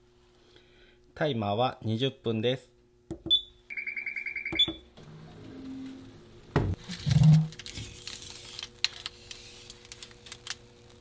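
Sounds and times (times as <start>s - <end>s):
oven timer beeping: 3.3s - 6.8s.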